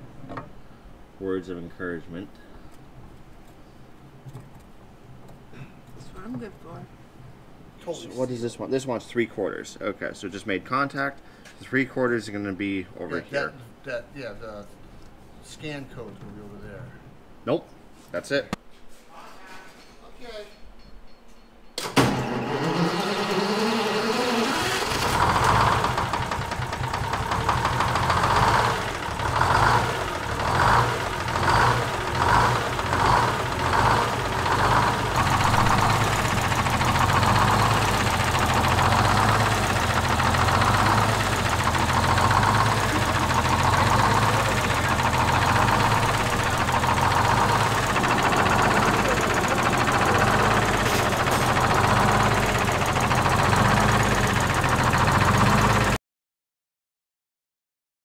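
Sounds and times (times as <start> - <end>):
diesel engine revving and idling: 22.3 - 56.0.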